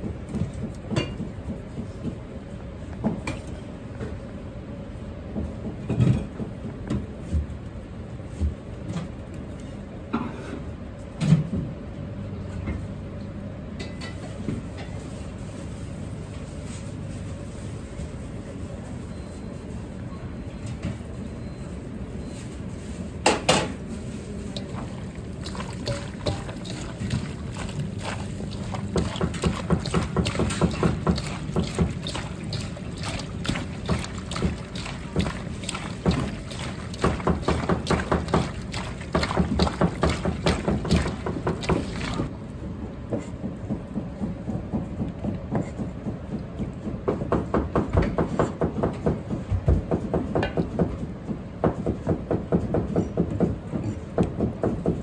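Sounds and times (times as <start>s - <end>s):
steady low hum: 23.8s - 43.0s
wet squelching of kneaded meat: 24.1s - 42.3s.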